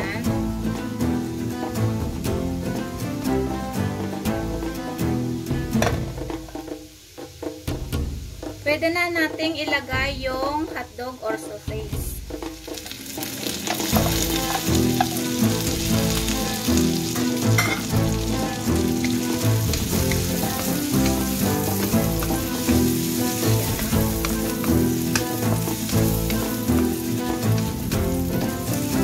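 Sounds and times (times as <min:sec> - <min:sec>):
background music: 0:00.0 - 0:29.0
sausage sizzling in hot oil: 0:12.0 - 0:29.0
wooden spatula scraping a wok: 0:12.3 - 0:29.0.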